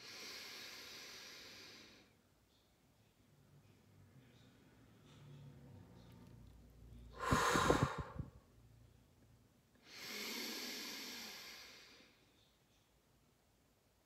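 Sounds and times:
sharp breath in through nose: 0.0 - 2.1, 7.2 - 8.3, 9.8 - 12.2
slow exhale through mouth: 7.2 - 8.3.

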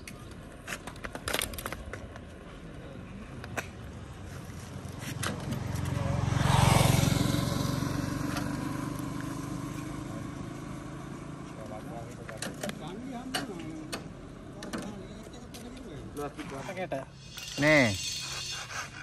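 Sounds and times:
vehicle passing close by: 5.4 - 11.7.

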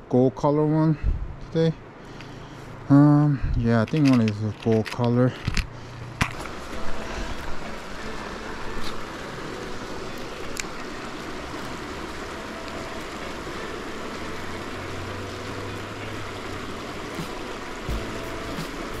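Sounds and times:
river water rushing: 5.7 - 19.0.

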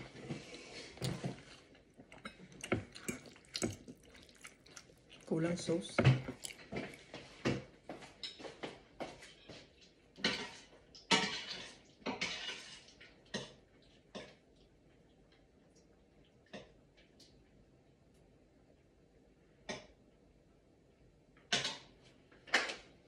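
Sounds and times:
dishes scraping: 0.2 - 7.1
dishes and cutlery clattering: 10.2 - 12.8.

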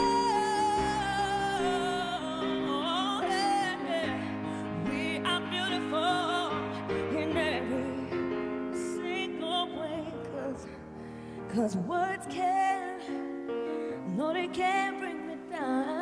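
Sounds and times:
woman singing pop ballad: 0.0 - 16.0.

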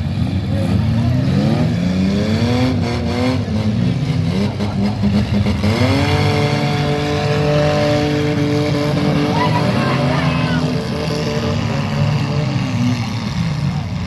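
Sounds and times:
car engines revving: 0.0 - 14.0.

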